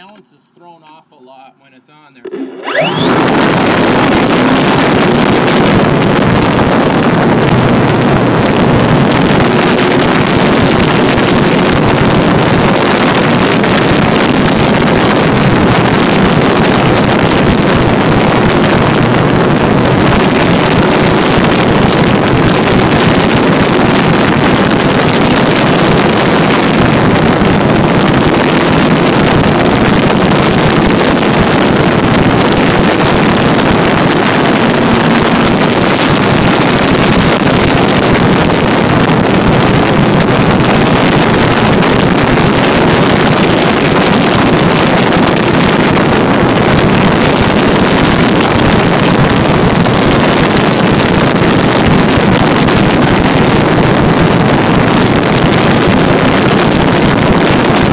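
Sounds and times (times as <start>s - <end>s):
faint model plane motor hum: 2.2s - 8.7s
propeller wash and wind rush: 2.2s - 57.9s.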